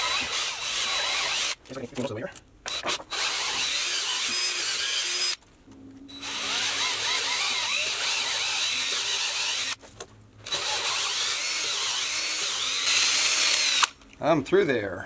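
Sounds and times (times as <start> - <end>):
power drill boring through wood: 0.0 - 1.6, 2.7 - 5.4, 6.1 - 9.8, 10.5 - 13.9.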